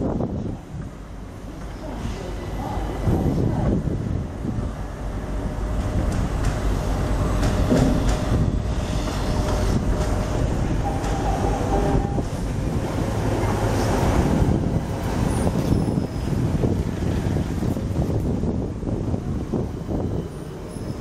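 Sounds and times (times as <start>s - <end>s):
electric train running over rails: 0.0s - 21.0s
wheel and rail clatter: 5.8s - 21.0s.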